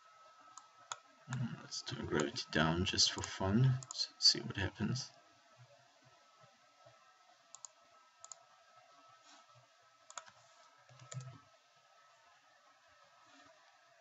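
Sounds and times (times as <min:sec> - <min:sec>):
computer mouse clicking: 0:03.2 - 0:04.0, 0:07.5 - 0:08.4, 0:10.1 - 0:11.4.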